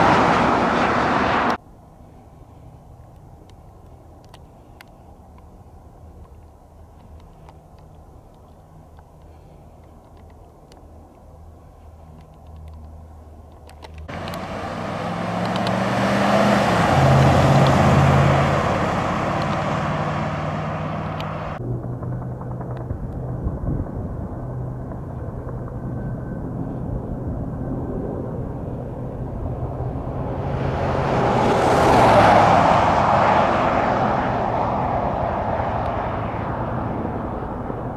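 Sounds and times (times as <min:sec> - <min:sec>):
dull low drone: 0:14.0 - 0:31.8
truck driving past: 0:14.1 - 0:23.8, 0:29.2 - 0:37.9.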